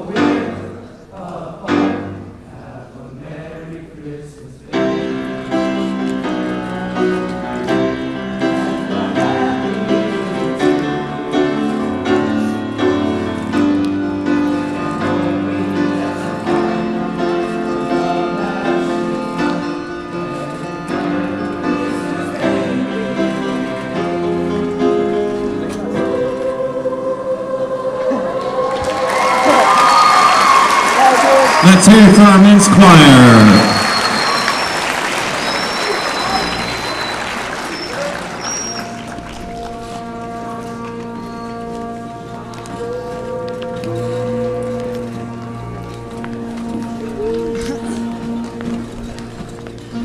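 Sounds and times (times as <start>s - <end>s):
men's choir singing: 0.0s - 38.7s.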